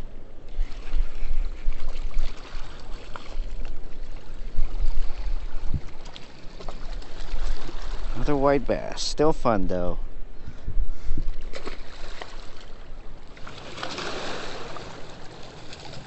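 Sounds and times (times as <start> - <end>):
wind buffeting microphone: 0.0 - 6.2, 6.8 - 13.4.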